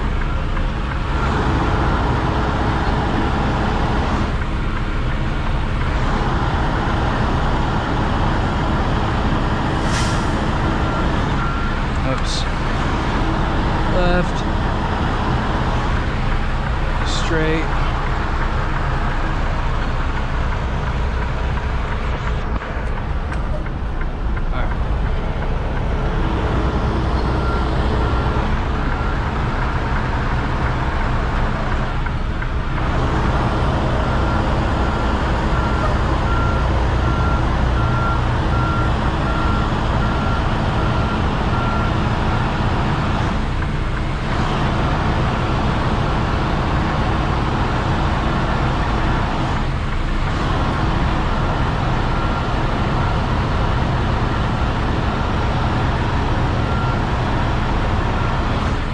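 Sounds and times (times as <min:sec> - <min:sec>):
truck diesel engine rumbling: 0:00.0 - 0:58.9.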